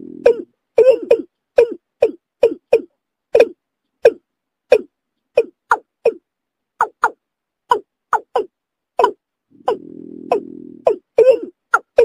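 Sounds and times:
low steady hum: 0:00.0 - 0:01.1, 0:08.8 - 0:11.4
bird calling sharp notes: 0:00.0 - 0:06.2, 0:06.8 - 0:12.0.

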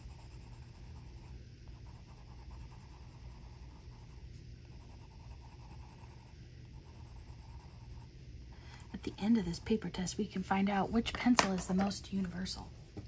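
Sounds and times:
colored pencil scratching on paper: 0:00.0 - 0:08.2, 0:08.9 - 0:10.0.

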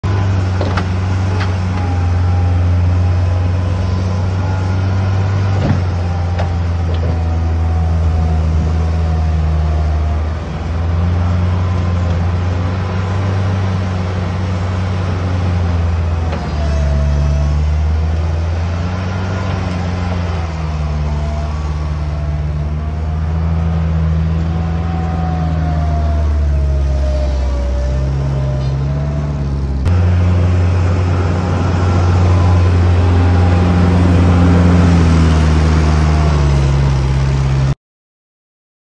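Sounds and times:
loader engine running: 0:00.0 - 0:37.8
high whine: 0:18.2 - 0:37.8.

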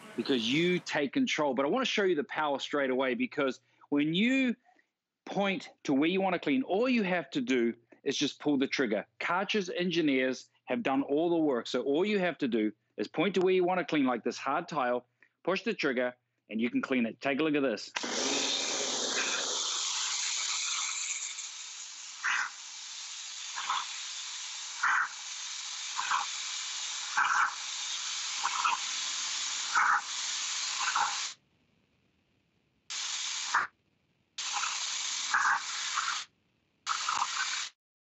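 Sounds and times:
pressure washer water jet hiss: 0:18.0 - 0:31.4, 0:32.9 - 0:33.7, 0:34.4 - 0:36.3, 0:36.9 - 0:37.8.

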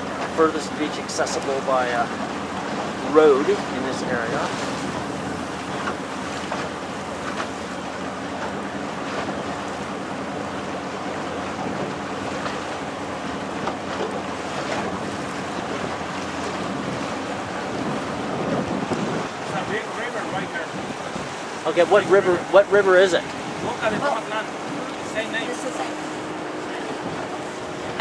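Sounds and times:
boat motor running: 0:00.0 - 0:28.0
water rushing past hull: 0:00.0 - 0:28.0
wind buffeting microphone: 0:00.9 - 0:28.0.

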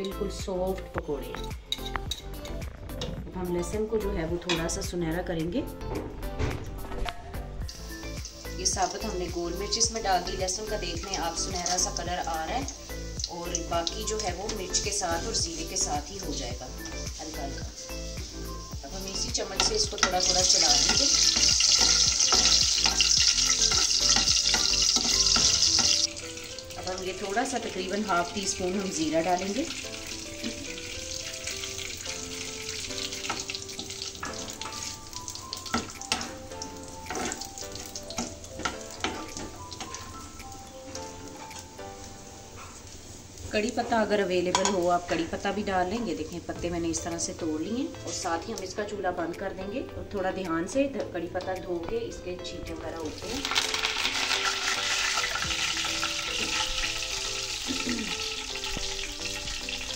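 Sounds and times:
soft melodic background tune: 0:00.0 - 0:59.9
oil sizzling in a frying pan: 0:07.6 - 0:49.5, 0:52.7 - 0:59.9
steel spoon knocking against pan: 0:44.5 - 0:44.8.

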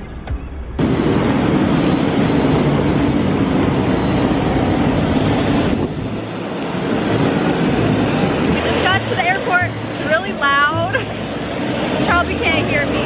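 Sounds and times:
jet engine running: 0:00.0 - 0:13.0.

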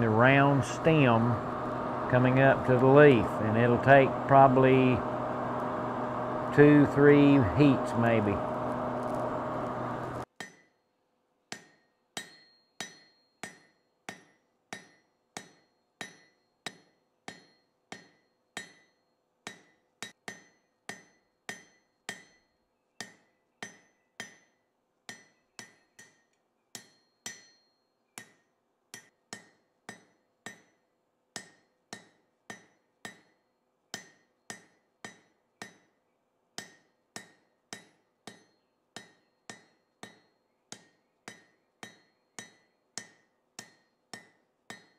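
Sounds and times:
hammer striking metal on anvil: 0:11.5 - 0:30.8, 0:31.4 - 0:36.0, 0:36.6 - 0:44.9.

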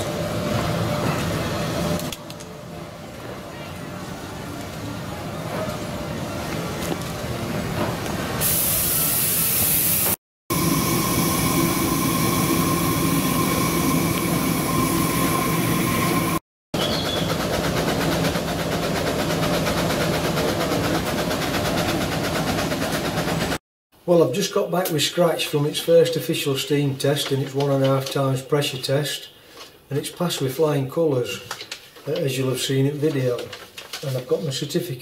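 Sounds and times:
steam hissing: 0:08.4 - 0:16.4.

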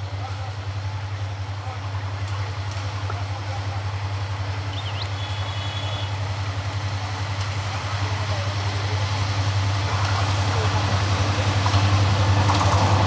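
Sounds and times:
diesel locomotive engine drone: 0:00.0 - 0:13.0
train rumble: 0:00.0 - 0:13.0.

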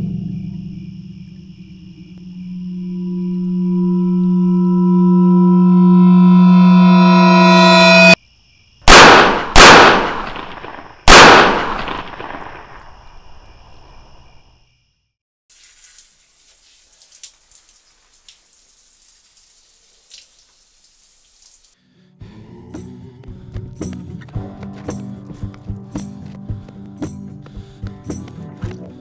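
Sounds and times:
pistol shots echoing: 0:08.9 - 0:12.8
shower spray hissing: 0:15.5 - 0:21.8
water dripping: 0:15.5 - 0:21.8.

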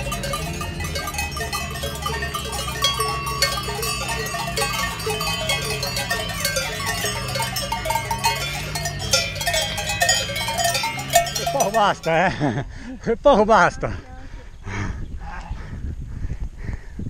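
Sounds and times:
cowbells clanking: 0:00.0 - 0:12.5.

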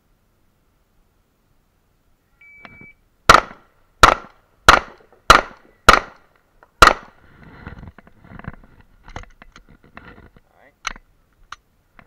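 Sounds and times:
shot timer beep: 0:02.4 - 0:03.0
pistol shots: 0:03.3 - 0:06.2, 0:06.8 - 0:07.1.

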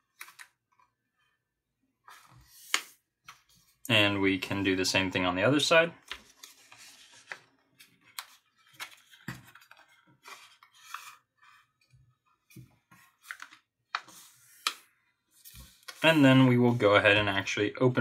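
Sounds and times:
paper being folded and creased: 0:06.0 - 0:12.3.

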